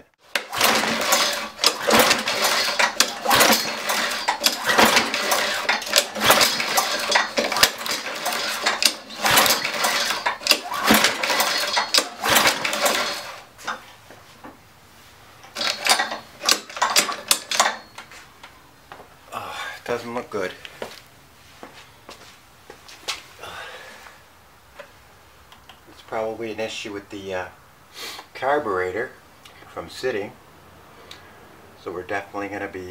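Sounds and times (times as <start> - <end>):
lawnmower engine cranking: 0.2 - 13.9, 15.4 - 18.2.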